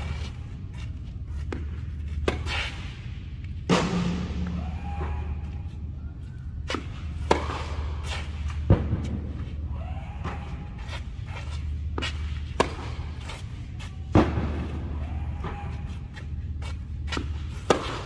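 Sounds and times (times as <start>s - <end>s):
steady low hum: 0.0s - 18.0s
tennis balls hit by racket: 1.5s - 2.9s, 6.6s - 9.4s, 10.2s - 14.8s, 16.7s - 18.0s.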